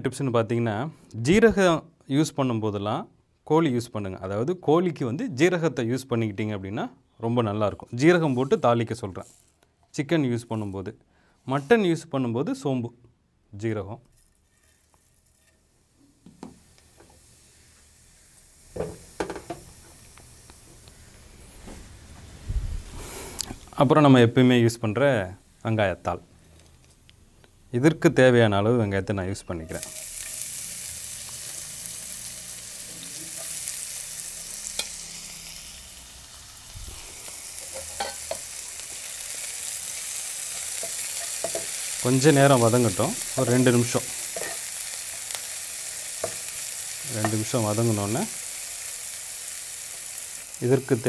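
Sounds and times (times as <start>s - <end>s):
seeds sizzling in hot oil: 7.6s - 12.0s, 14.0s - 27.6s, 28.2s - 51.0s.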